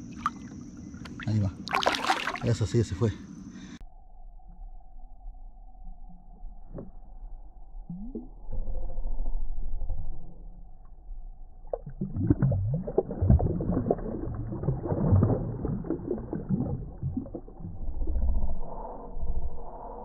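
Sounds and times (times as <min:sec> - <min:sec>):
fish splashing water: 0:00.0 - 0:02.6, 0:11.7 - 0:17.8
low rumble: 0:03.8 - 0:20.0.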